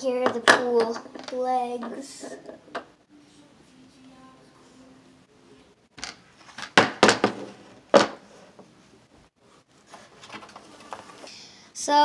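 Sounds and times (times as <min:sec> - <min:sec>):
plastic tabletop knocks and clatters: 0:06.0 - 0:08.3.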